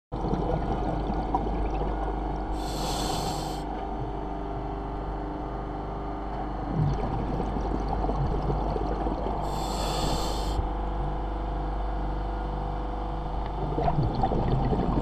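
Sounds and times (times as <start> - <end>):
scuba regulator inhale hiss: 2.6 - 3.7, 9.4 - 10.7
low rumbling noise: 6.5 - 11.8.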